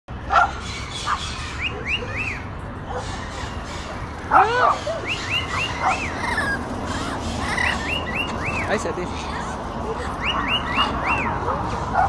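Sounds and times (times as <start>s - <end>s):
lorikeets chirping: 0.5s - 12.0s
lower bird call: 4.7s - 8.7s.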